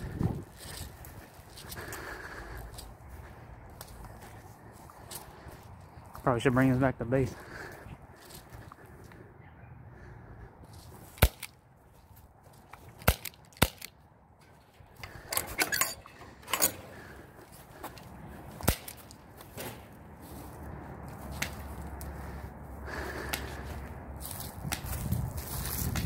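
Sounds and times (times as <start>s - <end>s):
scuffing sounds: 23.5s - 26.0s.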